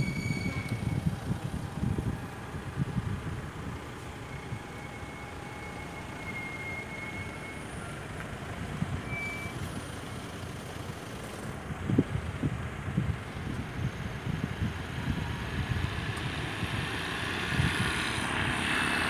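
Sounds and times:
wind buffeting microphone: 0.0 - 6.2, 11.6 - 19.0.

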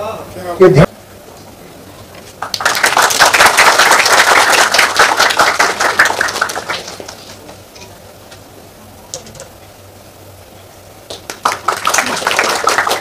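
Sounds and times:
audience applauding: 2.4 - 7.5, 11.1 - 13.0.

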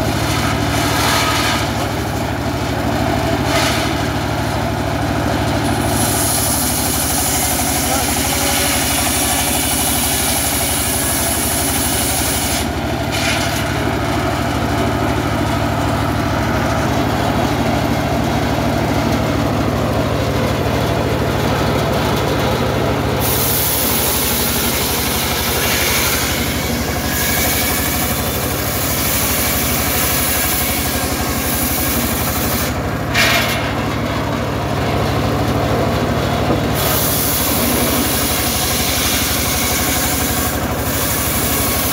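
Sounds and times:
circular saw ripping log: 0.2 - 1.9, 3.4 - 4.1, 5.7 - 13.8, 23.2 - 33.9, 36.7 - 41.9
low engine hum: 33.8 - 39.2.

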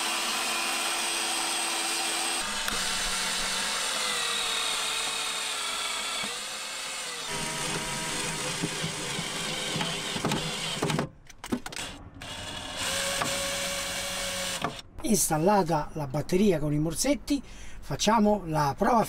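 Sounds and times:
cordless drill motor whine: 0.0 - 11.0, 11.8 - 14.8
drill click: 0.0 - 14.9.

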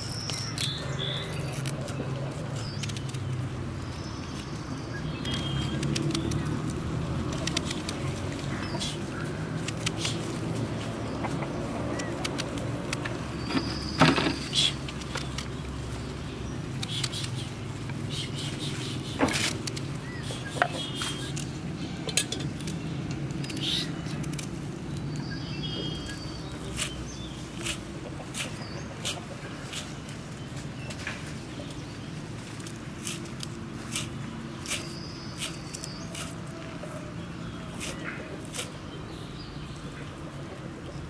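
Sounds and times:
bird calling: 13.4 - 14.9, 16.8 - 22.4, 23.4 - 24.2.

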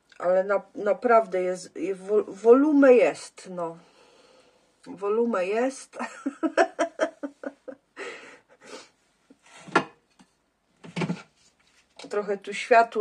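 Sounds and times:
woman laughing: 6.0 - 8.4
breathy exhalations: 8.0 - 9.0.

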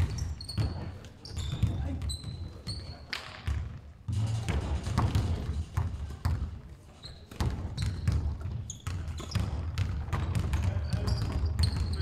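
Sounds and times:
shoe squeaks on court: 0.0 - 3.5, 6.9 - 12.0
basketball bouncing on wood floor: 0.0 - 6.6, 7.3 - 12.0.

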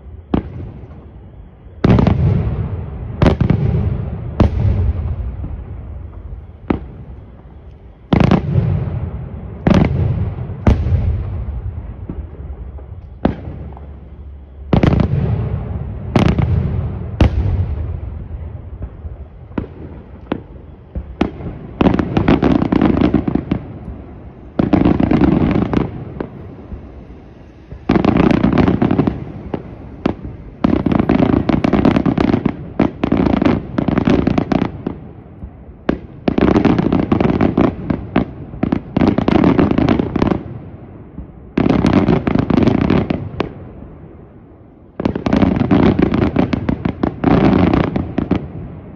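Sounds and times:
firework bangs: 0.0 - 48.9
fireworks crackling: 0.0 - 48.9.

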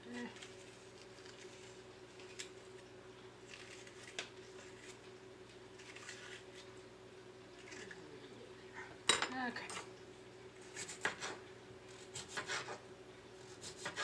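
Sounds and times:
faint steady hum: 0.0 - 14.0
squishy rustles of food containers: 0.1 - 6.9.

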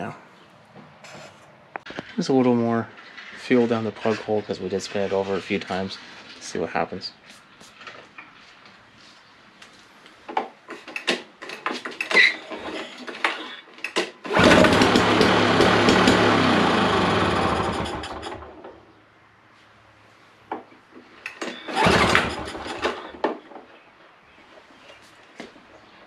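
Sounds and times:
two-stroke lawn mower engine: 14.2 - 18.9, 21.3 - 23.6.

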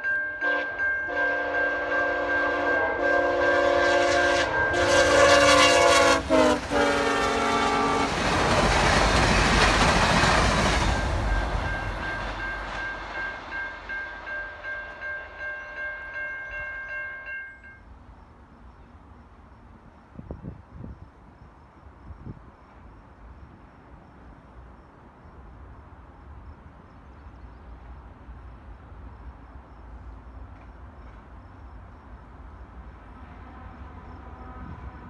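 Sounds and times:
locomotive air horn: 0.4 - 8.2, 33.2 - 35.0
train rushing rumble: 0.4 - 15.8
wheels clacking over rail joints: 6.2 - 15.2.

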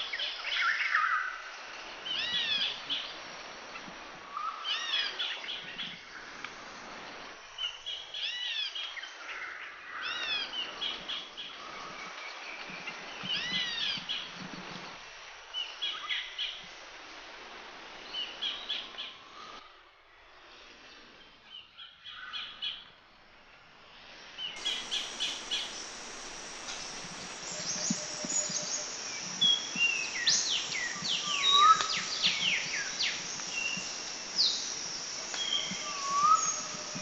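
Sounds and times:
birds chirping and whistling: 24.6 - 37.0.

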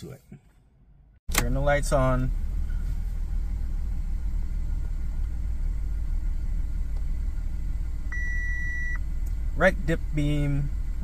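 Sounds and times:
car engine idling: 0.9 - 11.0
dashboard warning chime: 8.1 - 9.0.

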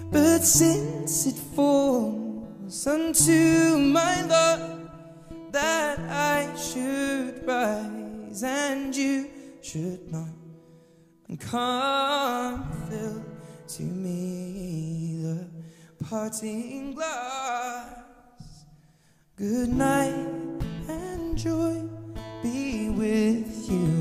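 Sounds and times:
solo voice singing with vibrato: 0.0 - 10.3.

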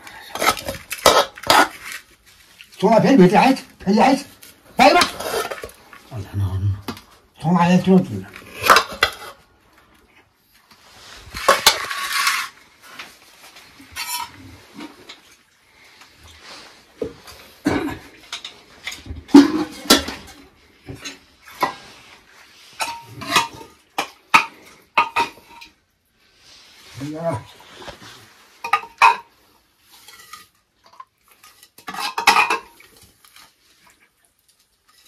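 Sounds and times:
dishes and utensils clinking: 8.4 - 9.4, 13.8 - 15.2, 17.0 - 22.0, 22.7 - 25.8, 28.6 - 29.4, 30.0 - 33.0.

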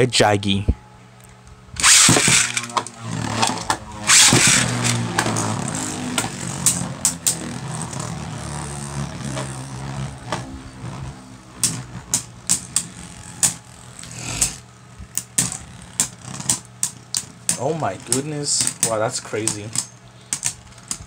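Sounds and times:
spinning tops clacking: 1.8 - 7.4
spinning tops whirring: 1.8 - 21.0.

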